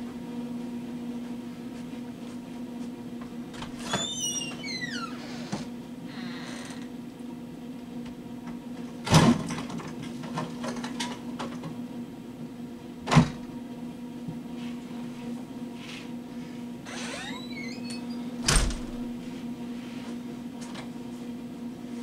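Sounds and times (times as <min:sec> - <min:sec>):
steady low hum: 0:11.2 - 0:22.0.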